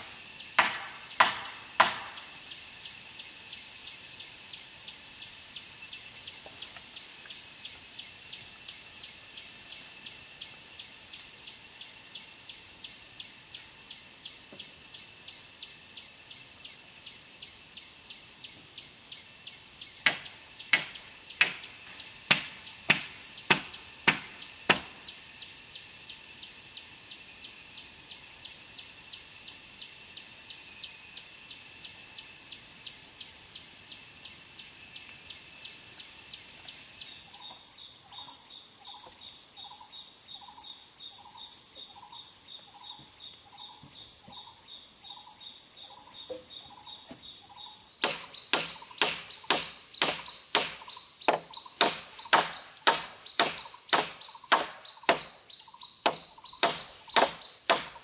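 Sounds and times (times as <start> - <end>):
insects chirping: 0.0 - 58.0
machete chopping wooden pole: 0.6 - 2.2, 20.0 - 21.6, 22.3 - 25.0, 48.0 - 55.3, 56.1 - 58.0.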